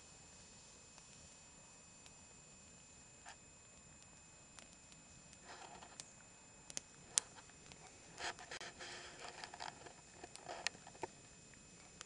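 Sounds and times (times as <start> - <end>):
campfire crackling and popping: 0.8 - 12.0.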